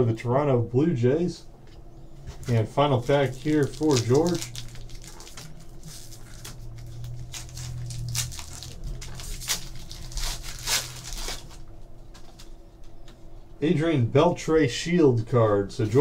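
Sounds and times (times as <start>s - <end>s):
foil tearing: 2.4s - 11.6s
foil wrapper crinkling: 2.4s - 12.5s.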